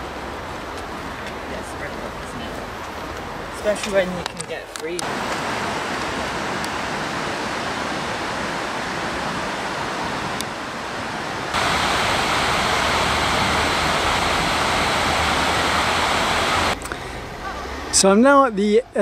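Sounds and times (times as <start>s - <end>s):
river water rushing: 5.0s - 17.2s.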